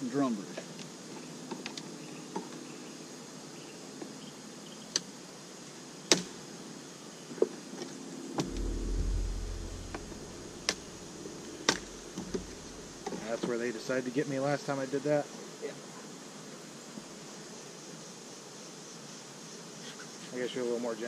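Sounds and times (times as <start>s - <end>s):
low rumble: 8.4s - 13.1s.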